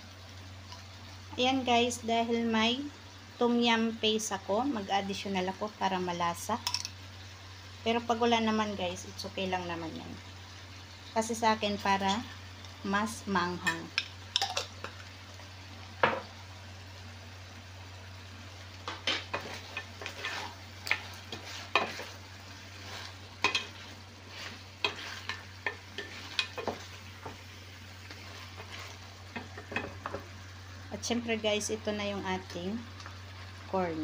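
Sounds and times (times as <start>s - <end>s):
sauce sizzling in a pan: 0.0s - 34.0s
spoon knocking and scraping pan: 13.6s - 15.1s, 16.0s - 16.3s, 18.8s - 27.5s, 28.1s - 30.3s.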